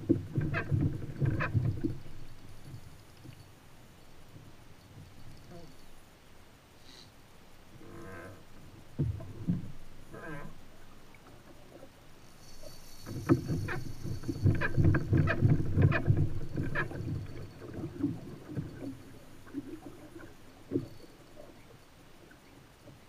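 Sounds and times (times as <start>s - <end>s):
water sloshing against hull: 0.0s - 6.1s, 7.7s - 23.0s.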